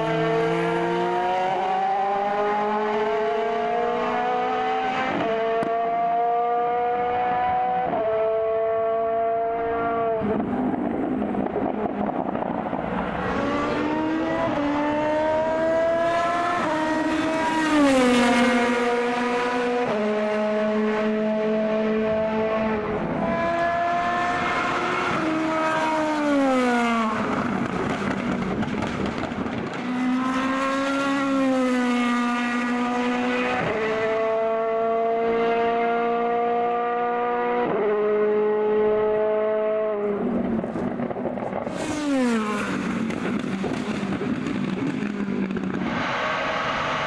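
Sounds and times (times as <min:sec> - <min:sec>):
racecar engines at full throttle: 0:00.0 - 0:47.0
racecar passing by: 0:12.9 - 0:39.2, 0:41.6 - 0:43.9.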